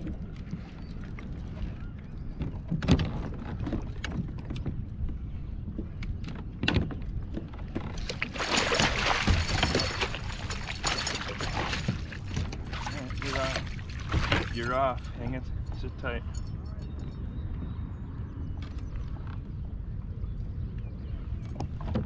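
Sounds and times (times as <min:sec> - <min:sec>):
fish splashing in water: 0:08.0 - 0:14.5.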